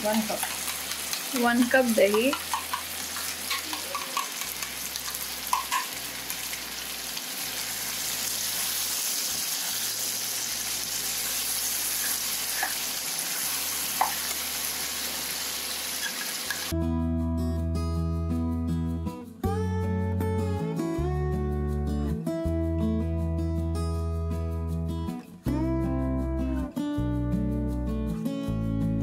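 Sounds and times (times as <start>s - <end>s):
food sizzling in a pan: 0.0s - 16.7s
strummed guitar music: 16.7s - 29.0s.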